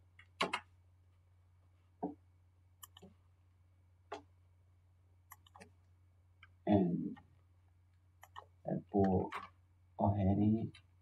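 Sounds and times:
computer mouse clicks: 2.8s - 3.2s, 5.3s - 5.8s, 8.2s - 9.5s.

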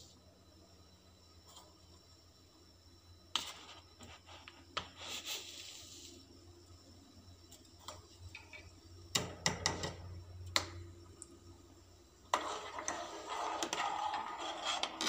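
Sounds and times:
spoon stirring and scraping pan: 12.2s - 15.0s.

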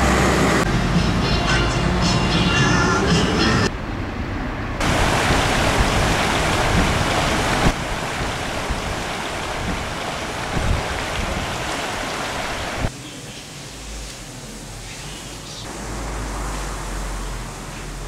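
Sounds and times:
river rushing: 4.8s - 12.9s.

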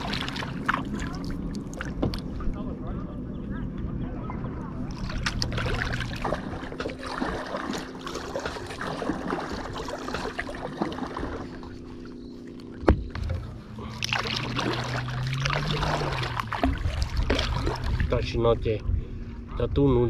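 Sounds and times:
paddle splashing in water: 0.0s - 2.4s, 4.9s - 18.2s.

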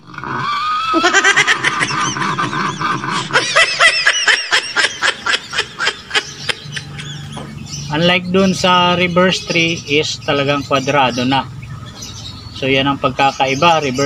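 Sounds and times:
comic laugh sound effect: 0.3s - 7.3s.

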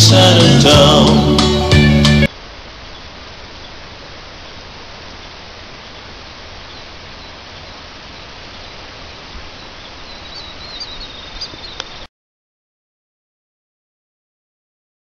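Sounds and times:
water rushing over rocks: 2.3s - 12.0s.

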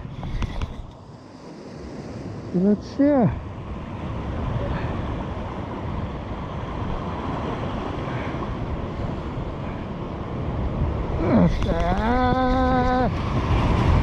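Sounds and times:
surf washing against rocks: 0.0s - 14.0s
wind buffeting microphone: 3.2s - 14.0s.

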